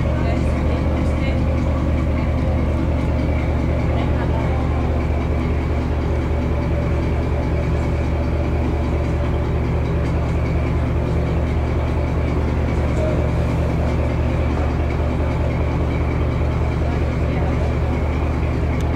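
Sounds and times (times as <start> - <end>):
vehicle engine running: 0.0 - 18.9.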